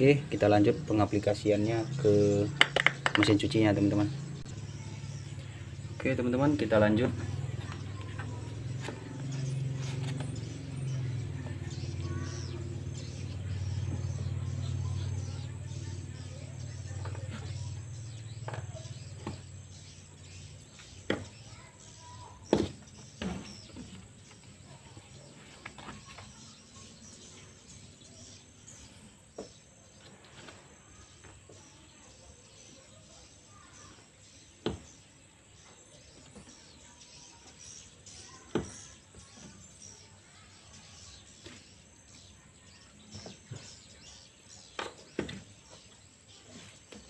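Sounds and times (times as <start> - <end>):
faint bird chirps: 0.0 - 47.0.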